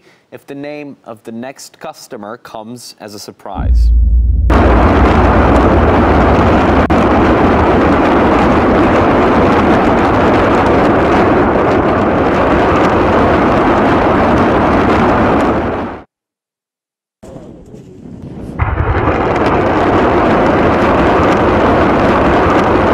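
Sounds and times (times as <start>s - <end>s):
rocket salvo launch rush: 3.6s - 9.7s.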